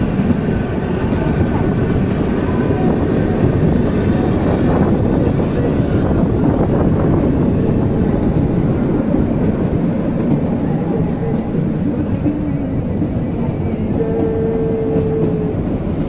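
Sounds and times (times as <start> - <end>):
train carriage rumbling and rattling: 0.0 - 16.0.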